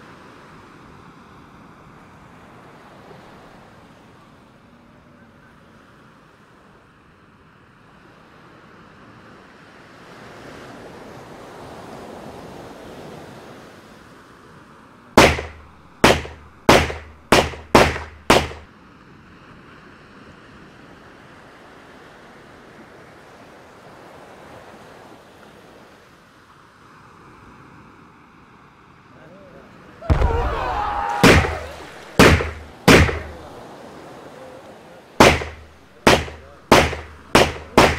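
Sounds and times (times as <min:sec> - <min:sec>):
sea and wind wash: 0:00.0 - 0:37.9
sharp gunshots: 0:15.2 - 0:18.7, 0:30.1 - 0:33.6, 0:35.2 - 0:37.9.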